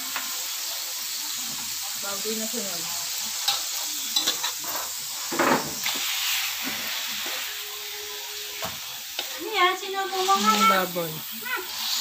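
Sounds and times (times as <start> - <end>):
meat sizzling in oil: 0.0 - 12.0
metal spoon clinking against pan: 3.4 - 4.9.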